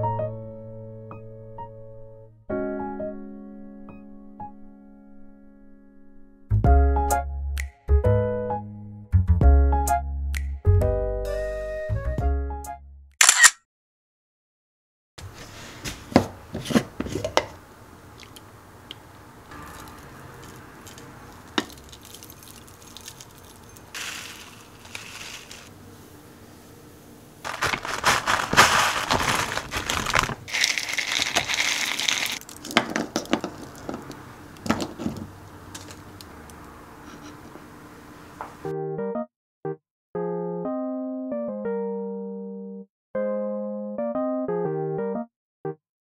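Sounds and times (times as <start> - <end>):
dry ingredients poured into bowl: 19.5 - 25.7, 27.5 - 34.0
plastic packaging crinkling: 19.7 - 25.7, 27.4 - 34.1.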